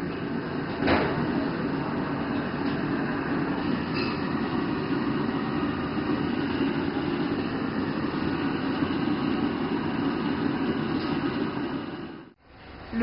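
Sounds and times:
extraction hood running: 0.0 - 13.0
gas burners roaring: 0.0 - 13.0.

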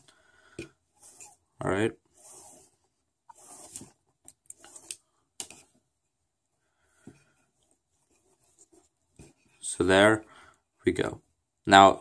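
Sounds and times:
cord rubbing against cord: 0.9 - 5.8, 7.4 - 9.7.

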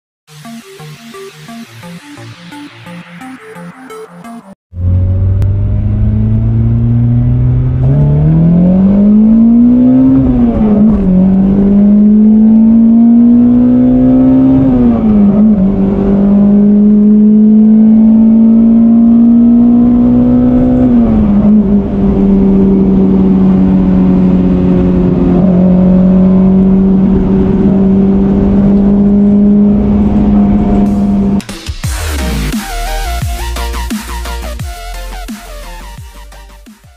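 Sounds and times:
car engine accelerating hard: 4.7 - 32.6.

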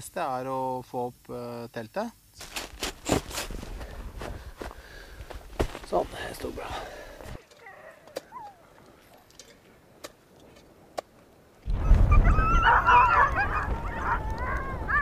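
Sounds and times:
sled dogs howling and whining: 7.5 - 9.3, 11.7 - 15.0.

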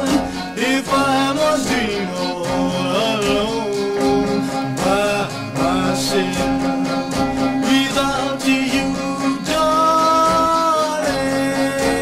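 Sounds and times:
guitar accompaniment: 0.0 - 12.0
vocal group singing: 0.0 - 12.0.

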